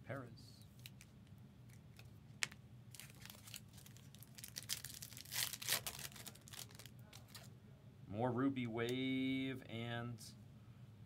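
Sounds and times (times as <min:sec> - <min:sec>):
cards rustling: 0:01.7 - 0:07.5
wrapper crinkling: 0:01.7 - 0:07.5.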